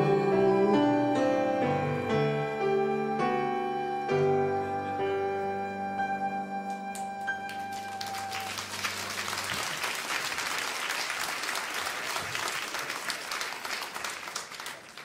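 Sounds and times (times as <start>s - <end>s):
audience applauding: 6.9s - 15.0s.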